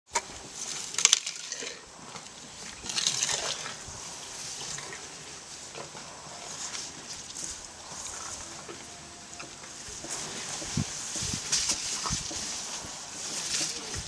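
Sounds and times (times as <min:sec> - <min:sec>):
elephant breathing snorting puffs: 0:03.3 - 0:09.3.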